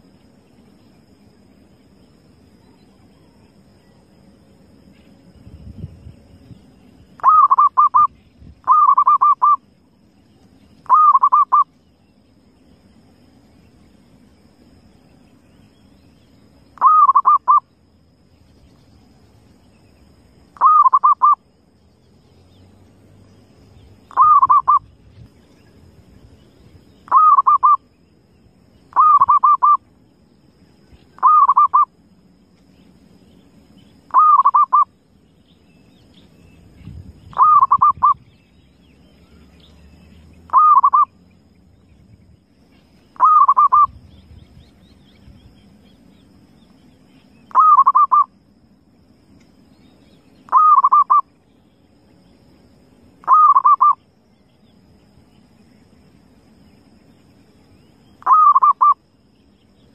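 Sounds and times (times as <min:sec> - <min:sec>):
dove cooing: 0:07.2 - 0:09.6, 0:10.9 - 0:11.6, 0:16.8 - 0:17.6, 0:20.6 - 0:21.4, 0:24.1 - 0:24.9, 0:27.1 - 0:27.8, 0:28.9 - 0:29.8, 0:31.2 - 0:31.9, 0:34.1 - 0:34.9, 0:37.3 - 0:38.2, 0:40.5 - 0:41.1, 0:43.2 - 0:44.0, 0:47.5 - 0:48.3, 0:50.5 - 0:51.2, 0:53.2 - 0:54.0, 0:58.2 - 0:59.0.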